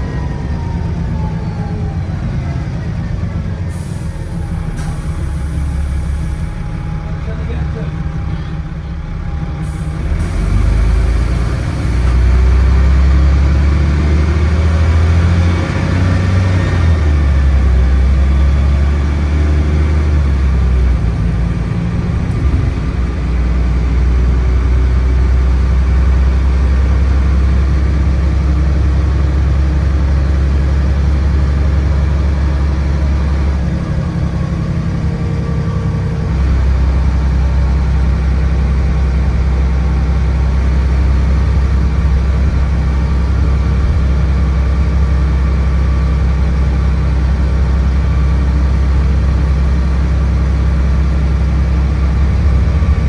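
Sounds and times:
bus engine revving: 0.0 - 53.0
air brake hiss: 3.7 - 6.6, 9.6 - 10.6.

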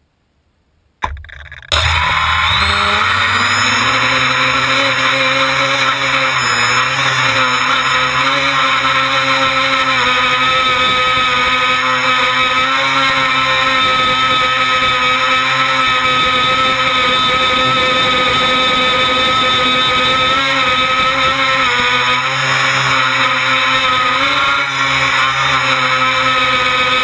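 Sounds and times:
drone motors whining: 1.0 - 27.0.

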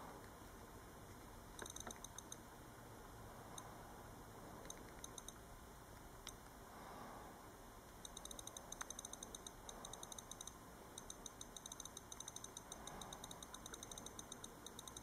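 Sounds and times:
click wheel clicking: 1.6 - 2.4, 8.0 - 15.0.

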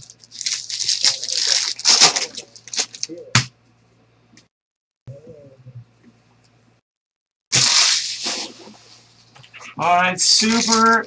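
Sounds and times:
card pack wrappers crinkling and tearing: 0.0 - 3.2, 7.5 - 8.3, 10.2 - 11.0
low steady hum: 5.1 - 6.8.

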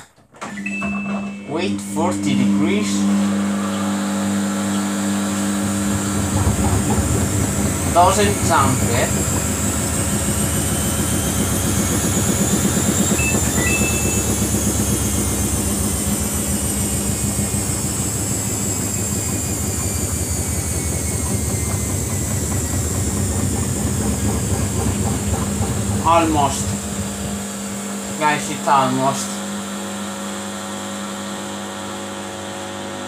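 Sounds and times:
washing machine motor whine: 0.0 - 33.0
short high tones: 0.5 - 3.0, 13.2 - 14.9.

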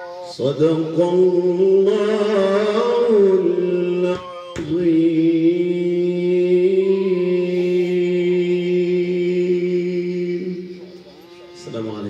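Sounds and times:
man chanting into a microphone: 0.3 - 10.7.

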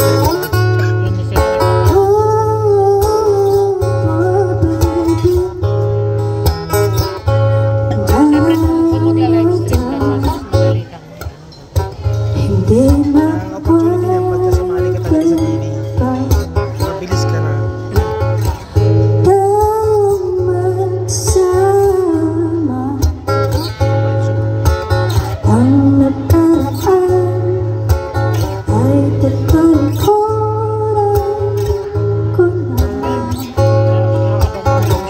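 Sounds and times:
acoustic guitar: 0.0 - 35.0
woman singing: 1.8 - 5.8, 7.9 - 10.6, 12.3 - 16.9, 19.2 - 23.4, 25.2 - 33.6.

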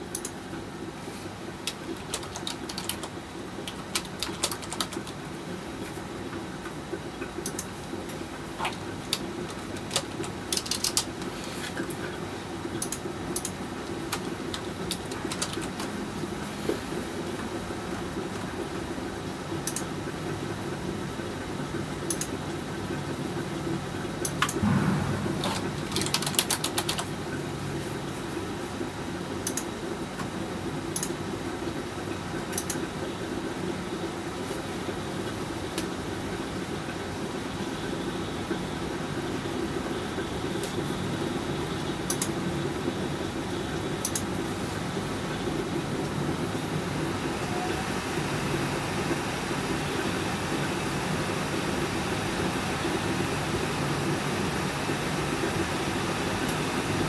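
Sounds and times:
keyboard and mouse clicks: 0.1 - 0.4, 1.7 - 5.2, 7.4 - 7.7, 12.8 - 15.9, 19.6 - 19.9, 22.1 - 22.4, 24.2 - 27.1, 29.4 - 29.7, 31.0 - 31.2, 32.5 - 32.8, 42.1 - 42.3, 44.0 - 44.3
steady low hum: 23.2 - 29.3.

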